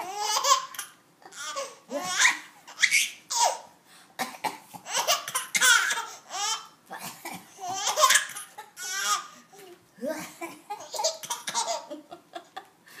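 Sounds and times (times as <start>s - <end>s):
baby laughing: 0.0s - 3.7s, 4.8s - 6.7s, 7.5s - 9.3s, 10.1s - 12.7s.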